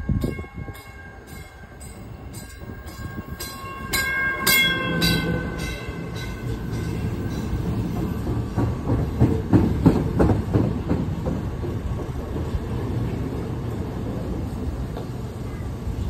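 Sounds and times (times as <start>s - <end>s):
train wheels rumbling on rail: 0.0s - 16.0s
wheels clicking over rail joints: 1.4s - 13.9s.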